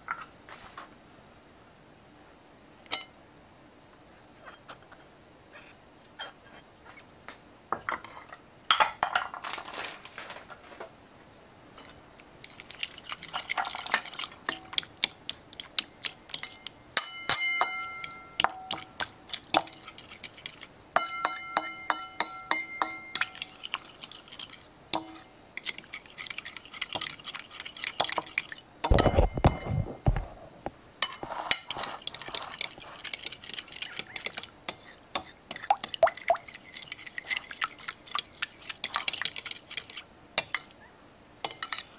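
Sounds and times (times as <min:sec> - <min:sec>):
wet batter swishing: 0:12.4 - 0:16.5, 0:18.8 - 0:20.8, 0:23.1 - 0:28.7, 0:31.4 - 0:40.1
fork clinking against bowl: 0:16.0 - 0:23.6, 0:25.0 - 0:25.8, 0:38.8 - 0:40.8, 0:41.4 - 0:41.9.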